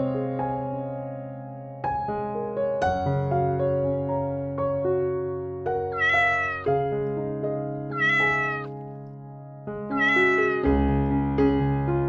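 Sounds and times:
piano music: 0:00.0 - 0:12.0
cat meowing: 0:05.9 - 0:06.8, 0:07.9 - 0:08.7, 0:09.9 - 0:10.9.

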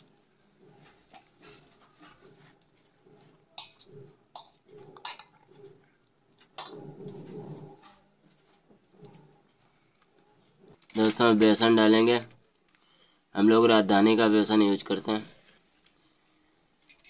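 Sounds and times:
hands squishing potatoes on metal: 0:00.0 - 0:12.0.

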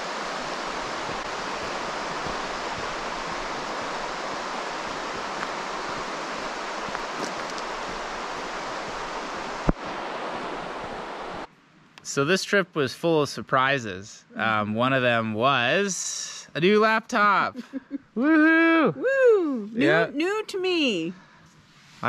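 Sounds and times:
river rushing over riffles: 0:00.0 - 0:11.5.

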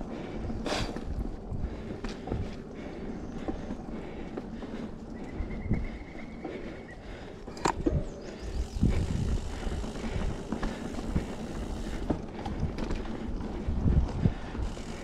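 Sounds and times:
bike rolling on dirt rumble: 0:00.0 - 0:15.0
bike rattles and knocks: 0:07.5 - 0:15.0.

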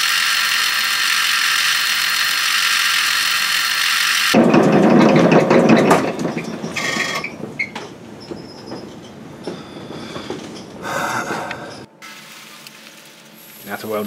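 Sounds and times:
metal lathe cutting: 0:00.0 - 0:07.3.

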